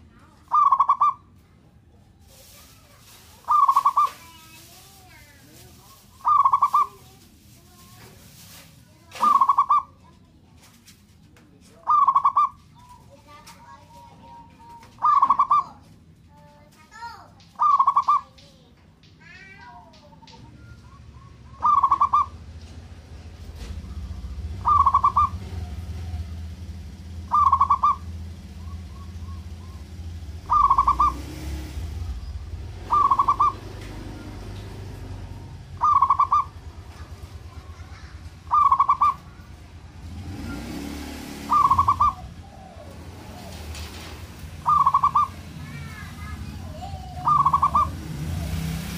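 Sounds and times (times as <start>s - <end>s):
small birds chirping: 0.0s - 10.8s, 11.5s - 48.9s
dove cooing: 0.5s - 1.2s, 3.4s - 4.3s, 5.9s - 7.1s, 9.1s - 9.9s, 11.8s - 13.0s, 13.9s - 15.7s, 17.6s - 18.3s, 20.6s - 22.4s, 23.8s - 34.6s, 35.2s - 39.5s, 40.4s - 48.6s
low steady rumble: 18.4s - 48.5s.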